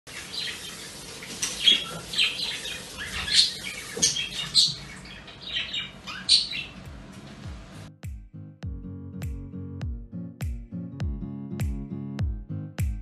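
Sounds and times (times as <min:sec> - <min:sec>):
birds chirping and calling: 0:00.1 - 0:07.4.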